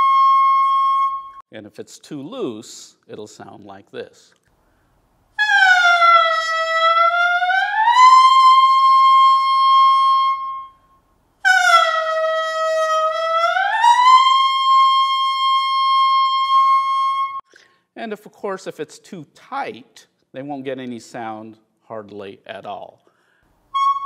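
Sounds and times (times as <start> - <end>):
clarinet mouthpiece long tones: 0.0 - 1.4, 5.4 - 17.4, 23.7 - 24.0.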